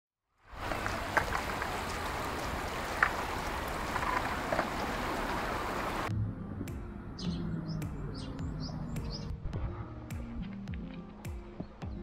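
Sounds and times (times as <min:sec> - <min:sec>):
steady hiss of water: 0:00.5 - 0:06.1
water drops ticking: 0:00.6 - 0:06.1.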